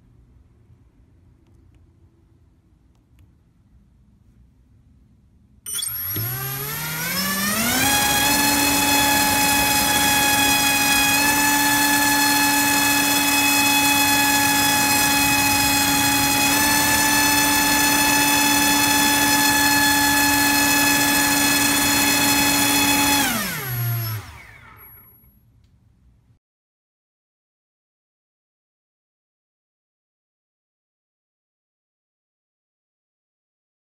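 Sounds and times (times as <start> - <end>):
motor and propeller whine: 5.7 - 25.2.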